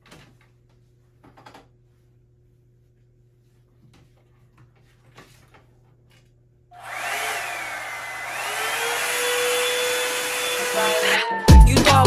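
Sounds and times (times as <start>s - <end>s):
hair dryer blowing: 6.8s - 11.6s.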